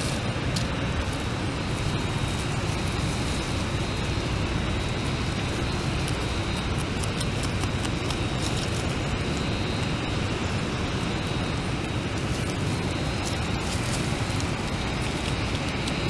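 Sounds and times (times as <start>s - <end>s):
beaver gnawing crunching: 0.0s - 16.0s
low background rumble: 0.0s - 16.0s.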